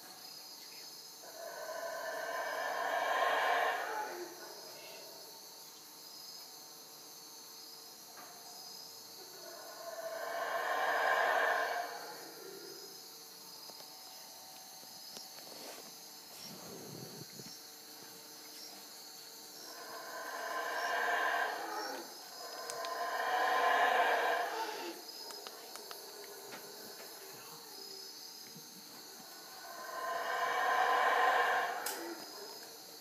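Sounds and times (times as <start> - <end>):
night insects chirring: 0.0 - 33.0
howler monkeys calling: 1.3 - 5.1, 9.3 - 12.8, 19.6 - 27.3, 29.2 - 32.7.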